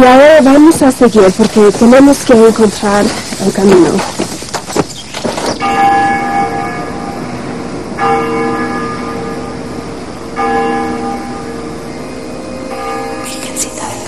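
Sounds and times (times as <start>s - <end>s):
church bell tolling: 5.6s - 14.0s.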